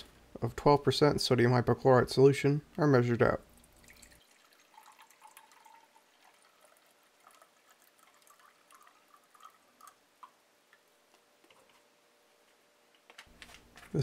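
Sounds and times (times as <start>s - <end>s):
liquid trickling into beaker: 3.4s - 10.4s.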